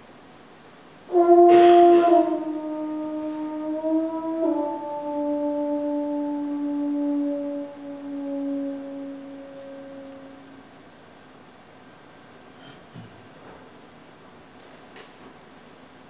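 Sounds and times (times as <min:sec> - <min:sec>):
french horn sustained notes: 0:01.1 - 0:11.0.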